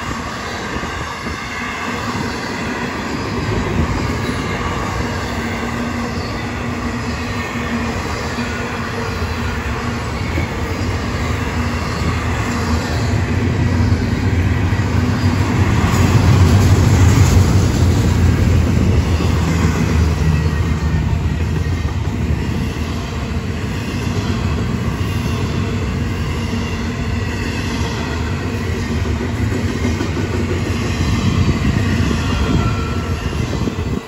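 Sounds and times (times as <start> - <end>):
steel wheels rolling on rail: 0.0 - 34.0.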